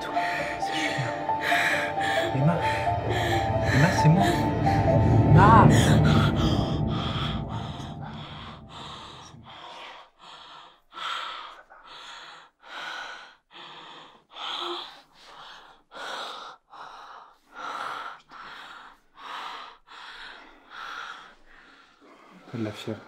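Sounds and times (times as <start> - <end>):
low sound: 0.0 - 9.8.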